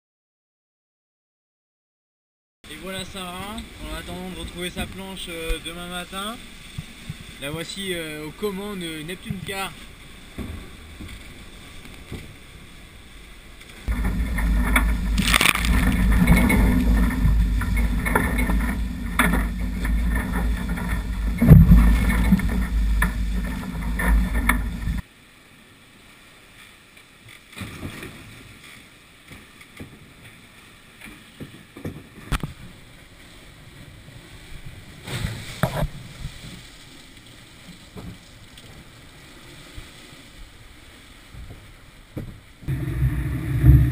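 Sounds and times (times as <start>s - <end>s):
water rushing past hulls: 2.7s - 26.6s, 27.4s - 43.9s
wind noise on microphone: 13.8s - 25.0s, 42.6s - 43.9s
knocks: 13.9s - 25.0s.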